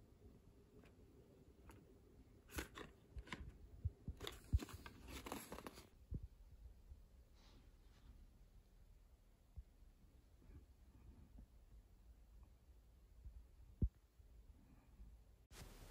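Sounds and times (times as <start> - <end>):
cardboard box rustling: 4.2 - 5.9.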